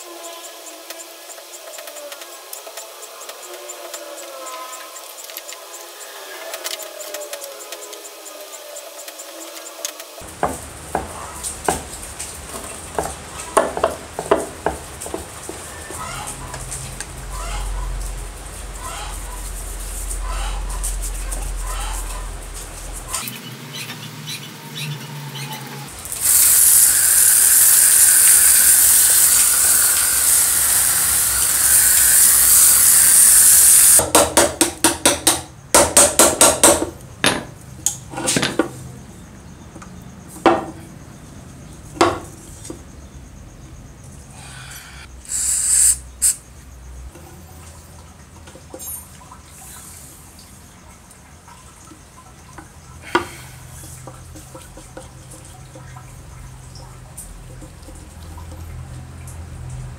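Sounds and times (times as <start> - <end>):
brush scrubbing: 18.9 - 23.2
loud spray hiss: 25.9 - 34.0, 45.0 - 46.4.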